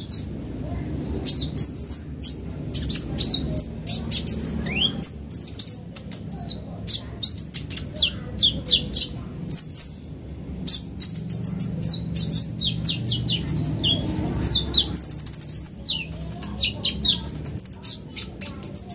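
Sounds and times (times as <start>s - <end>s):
rapid high bird trill: 10.7s - 16.1s, 16.7s - 18.9s
bird singing high thin chirps: 10.7s - 18.9s.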